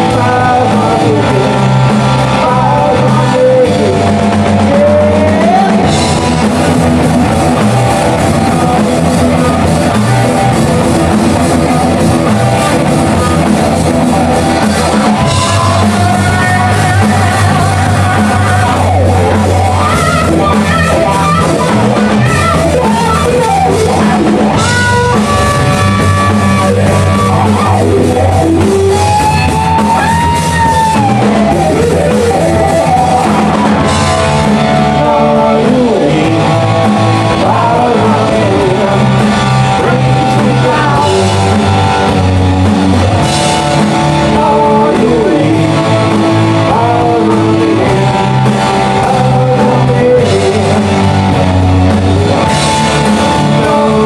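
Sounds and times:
person singing: 0.0 - 10.2, 11.1 - 42.3, 43.4 - 54.0
bass guitar: 0.0 - 54.0
drum kit: 0.0 - 54.0
electric guitars: 0.0 - 54.0.

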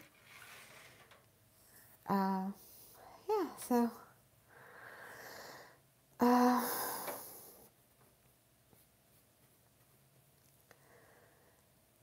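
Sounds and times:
woman breathing out: 4.5 - 7.7
woman sighing: 6.2 - 7.6.

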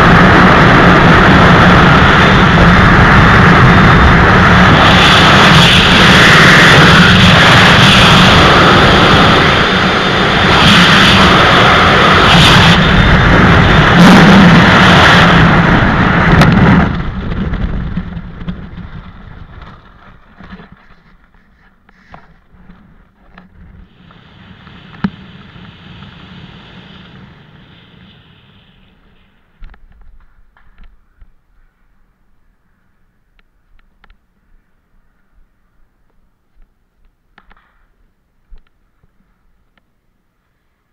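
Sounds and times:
wind rushing over microphone: 0.0 - 31.2
faint rustles and clicks: 18.0 - 23.8.

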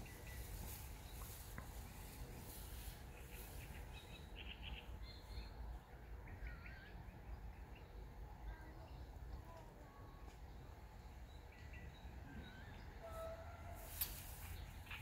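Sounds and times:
faint bird chirps: 3.1 - 13.5.

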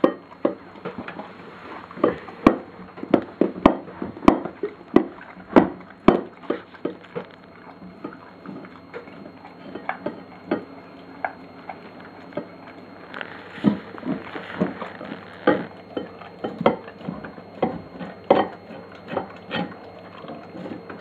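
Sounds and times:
clicks and knocks against bowl: 0.0 - 1.2, 8.0 - 12.5, 15.4 - 19.8
dog eating from a bowl: 0.0 - 21.0.

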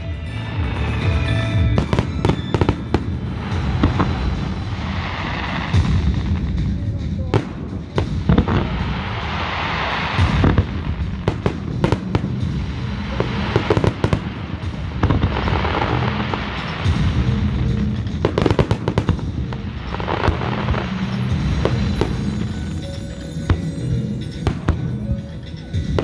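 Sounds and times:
firework crackling: 0.0 - 26.0.

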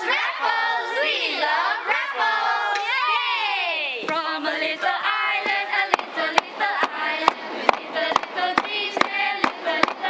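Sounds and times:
children singing together: 0.0 - 10.0
hands clapping a beat: 4.0 - 10.0.

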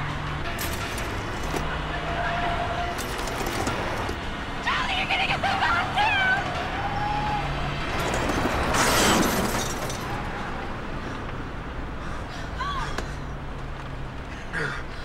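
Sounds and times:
car scraping metal gate: 0.6 - 4.2, 7.9 - 10.2.

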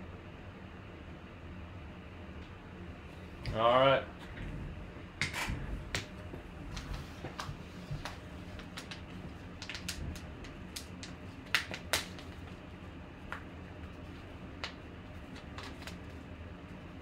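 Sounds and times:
padded envelope crinkling: 14.0 - 16.2.

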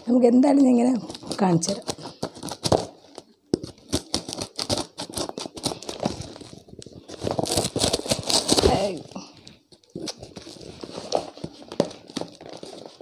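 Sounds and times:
tape crinkling: 0.0 - 13.0
scissors cutting packing tape: 1.0 - 9.0.

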